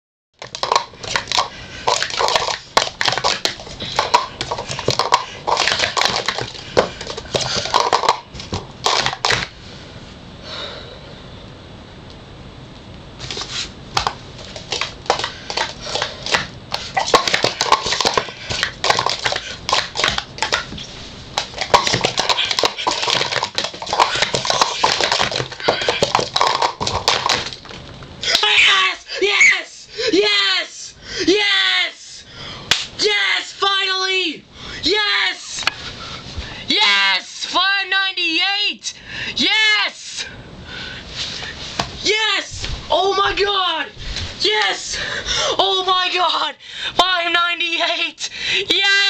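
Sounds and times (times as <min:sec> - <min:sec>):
plastic cups clattering: 0:00.4 - 0:09.5, 0:13.3 - 0:28.4.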